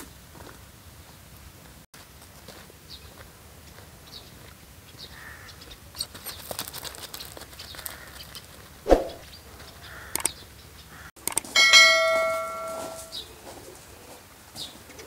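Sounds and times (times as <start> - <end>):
dog paws on gravel: 2.0 - 5.4, 6.0 - 8.8
small birds chirping: 4.0 - 11.1.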